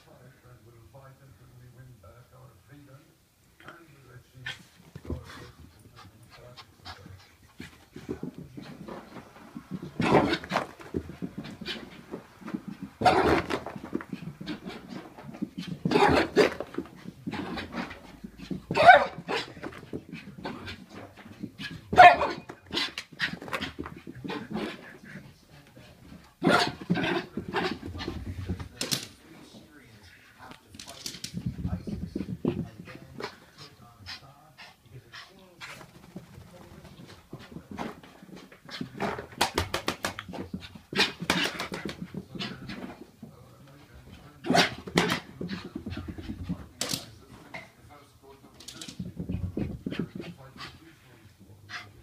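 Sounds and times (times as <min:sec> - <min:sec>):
dog panting: 0:04.4 - 0:13.0, 0:31.4 - 0:39.3, 0:49.0 - 0:52.0
puppy claws clicking and thumping: 0:30.7 - 0:32.9, 0:44.7 - 0:47.1.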